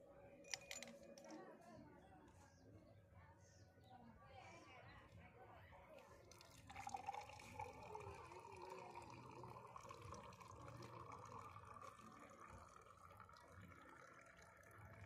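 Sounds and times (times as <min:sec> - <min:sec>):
water pouring into a glass: 0:06.1 - 0:15.0.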